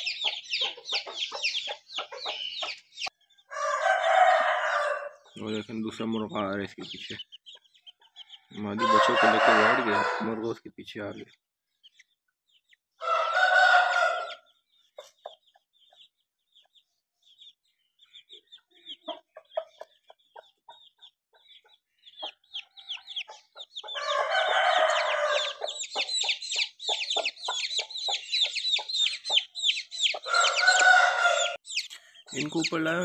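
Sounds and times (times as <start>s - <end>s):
hen clucking: 0.0s - 10.5s, 18.3s - 33.0s
chicks peeping: 0.0s - 33.0s
rooster crowing: 3.5s - 5.2s, 8.4s - 10.5s, 13.0s - 14.5s, 23.9s - 25.8s, 30.2s - 31.6s.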